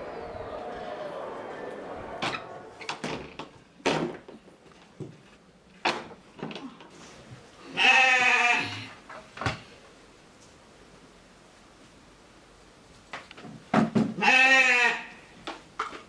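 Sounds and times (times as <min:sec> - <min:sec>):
sheep bleating: 0:07.7 - 0:08.9, 0:14.2 - 0:15.2.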